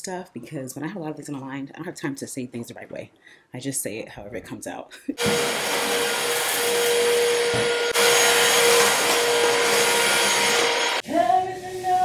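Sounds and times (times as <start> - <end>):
stick vacuum running: 5.2 - 11.0.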